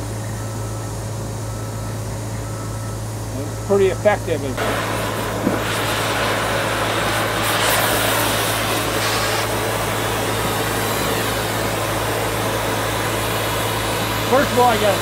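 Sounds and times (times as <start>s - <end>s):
cutting torch hissing: 3.2s - 15.0s.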